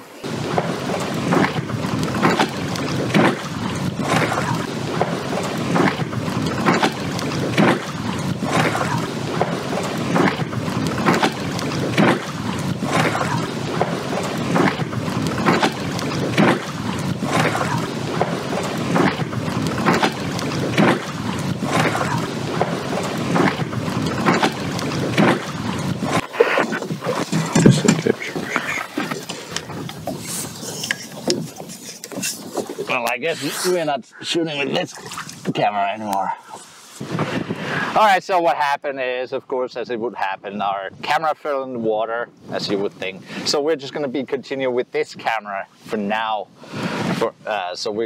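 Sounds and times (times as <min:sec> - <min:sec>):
wind buffeting microphone: 0:00.0 - 0:38.0
water lapping against pier: 0:00.0 - 0:38.5, 0:40.2 - 0:48.0.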